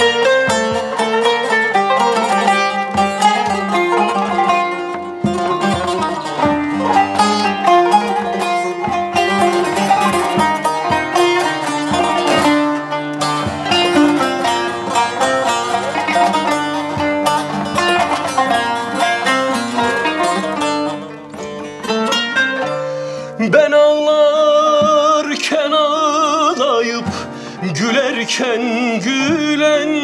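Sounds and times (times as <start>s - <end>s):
plucked zither notes: 0.0s - 27.3s
man singing with vibrato: 23.3s - 30.0s.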